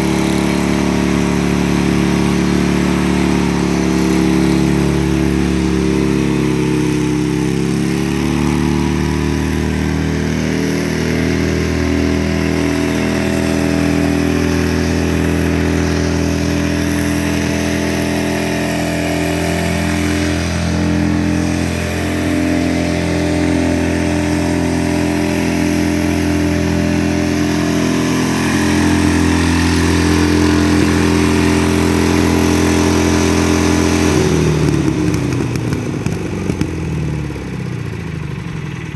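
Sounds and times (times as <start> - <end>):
lawn tractor engine running: 0.0 - 38.9.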